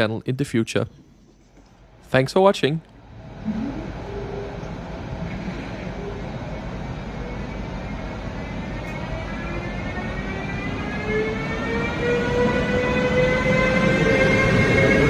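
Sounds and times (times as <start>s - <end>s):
low rumble: 2.9s - 7.0s
electric locomotive pulling away: 3.0s - 15.0s
traction equipment whine: 3.1s - 15.0s.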